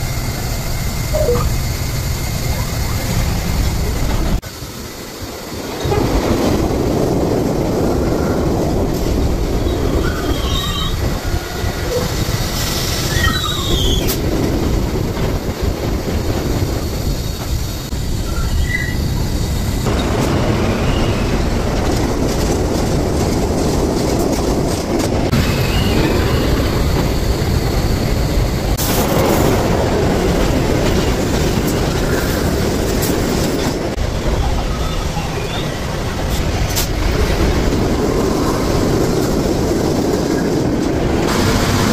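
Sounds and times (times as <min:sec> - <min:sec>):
steel wheels rumbling on rail: 0:00.0 - 0:41.9
high-pitched wheel squeals: 0:01.1 - 0:01.6, 0:09.7 - 0:12.1, 0:13.0 - 0:14.2, 0:18.2 - 0:19.3.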